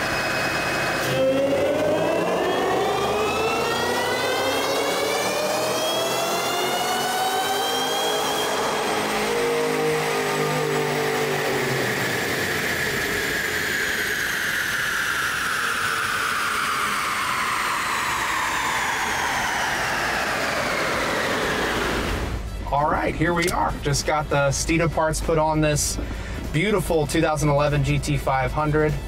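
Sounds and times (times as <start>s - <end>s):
lower engine note: 0.0s - 29.0s
supercharged engine whine: 0.0s - 29.0s.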